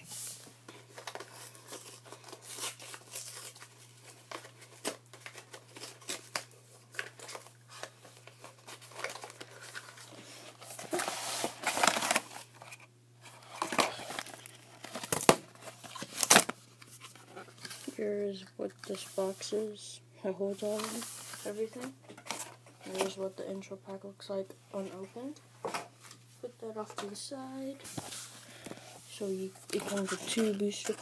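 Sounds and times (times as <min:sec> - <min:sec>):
faint steady hum: 0:00.0 - 0:31.0
packaging crinkling and tearing: 0:00.8 - 0:17.9.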